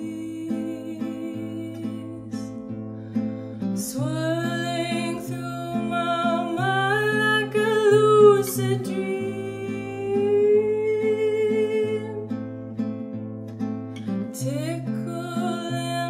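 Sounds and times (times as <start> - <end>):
woman singing long notes: 0.0 - 2.6, 3.8 - 12.3
fingerpicked classical guitar: 0.0 - 16.0.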